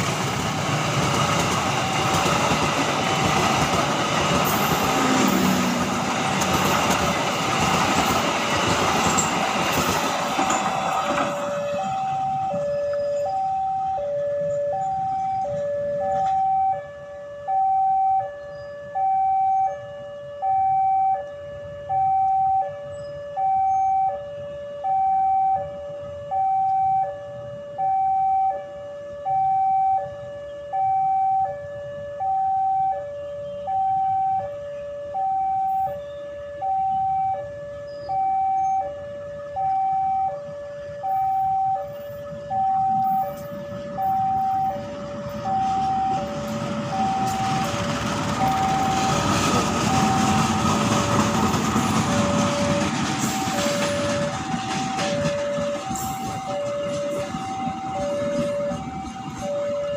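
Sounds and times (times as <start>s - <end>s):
train rumbling: 0.0s - 17.1s, 37.0s - 59.9s
level crossing two-tone alarm: 10.4s - 59.9s.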